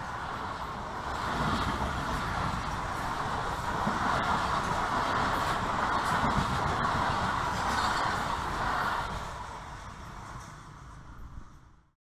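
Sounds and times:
train coaches rushing past: 0.0 - 11.8.

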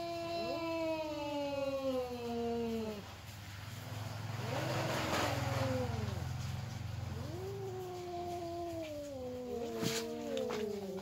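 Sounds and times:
cats yowling: 0.0 - 3.2, 4.3 - 11.0
passing motor vehicle: 3.1 - 10.7.

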